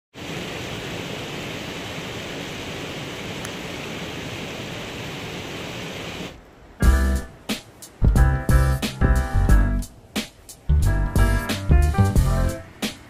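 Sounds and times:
river water rushing: 0.2 - 6.8.

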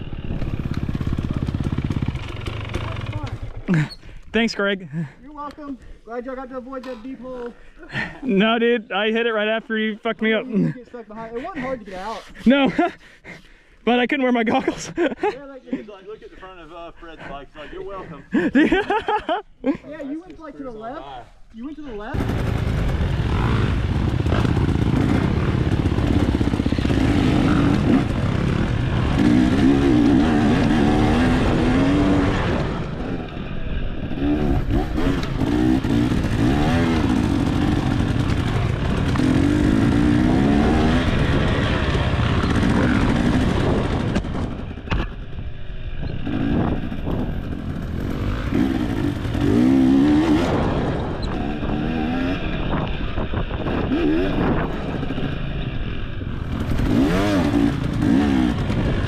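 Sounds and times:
dirt bike engine revving: 0.0 - 3.9, 22.2 - 59.0.

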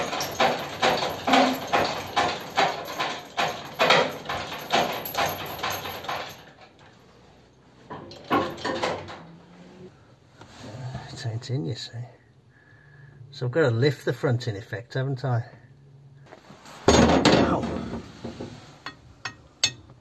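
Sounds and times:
metal engine knocking and rattling: 0.0 - 6.8, 7.9 - 9.2.

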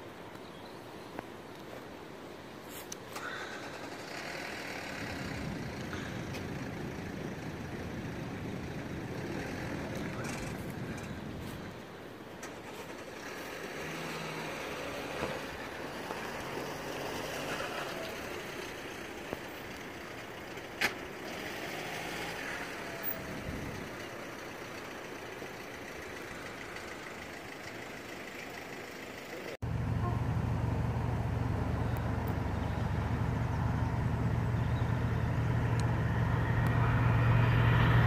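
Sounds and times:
traffic: 0.0 - 38.0
wind: 0.0 - 38.0
steady low rumble: 29.6 - 38.0.

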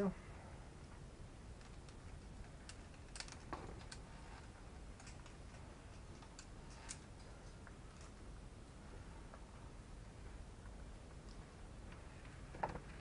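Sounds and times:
climbing gear clicking on rock: 1.6 - 8.2.

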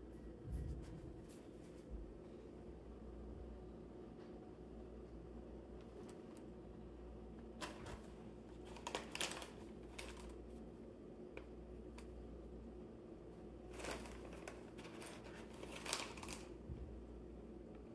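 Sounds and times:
paper and cardboard rustling: 7.6 - 10.4, 13.7 - 16.5.

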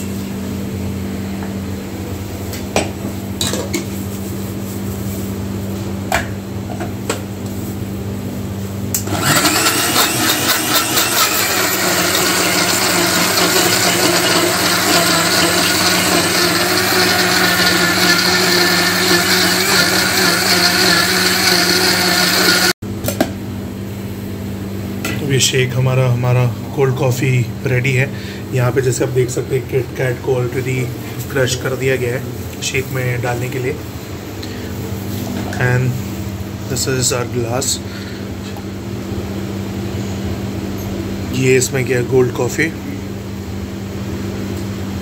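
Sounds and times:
blender running: 8.9 - 22.8.

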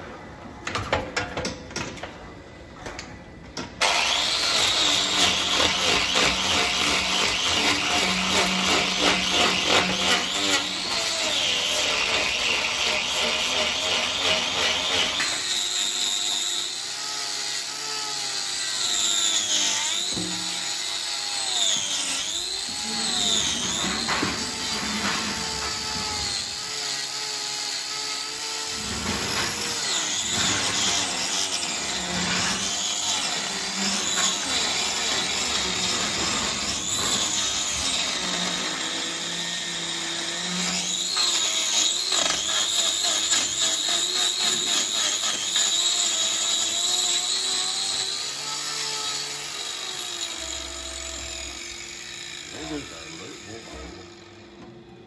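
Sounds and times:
angle grinder cutting hoof: 3.8 - 55.0.

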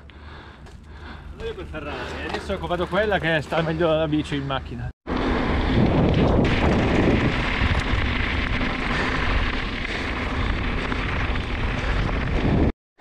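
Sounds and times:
bike tyres on gravel: 0.3 - 12.8
wind on microphone: 5.1 - 12.7.

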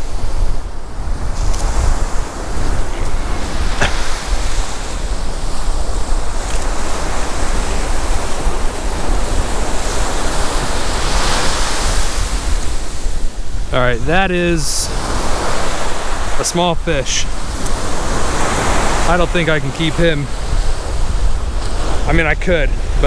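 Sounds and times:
ocean surf washing ashore: 0.0 - 23.0
wind buffeting microphone: 0.0 - 23.0.

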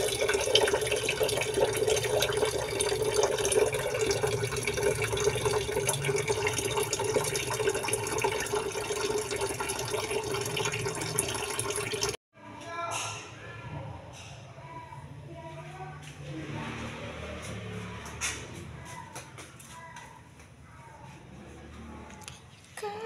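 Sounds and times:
tap water running into metal pot: 0.0 - 12.2.

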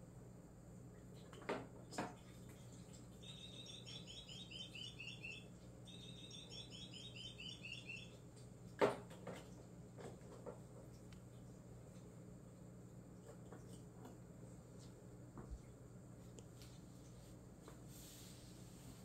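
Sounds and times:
rapid high chirps: 3.2 - 8.2.

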